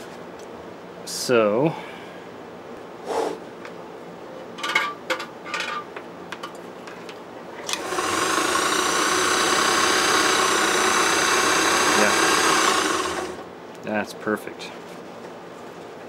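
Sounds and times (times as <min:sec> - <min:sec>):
sewing machine motor running: 0:07.7 - 0:13.5.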